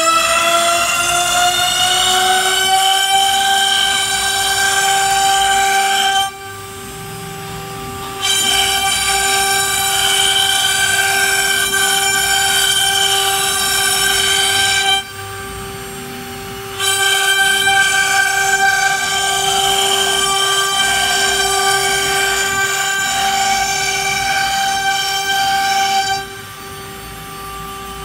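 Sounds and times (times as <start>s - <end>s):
router spindle whining: 0.0s - 28.0s.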